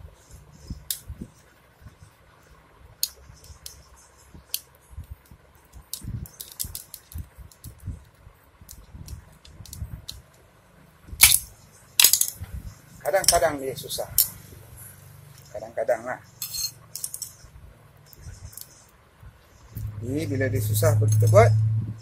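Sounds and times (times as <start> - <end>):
small metallic clicks and scrapes: 2.4 - 10.4, 16.2 - 19.0, 20.8 - 21.5
loud sharp metal clinks: 16.3 - 17.5.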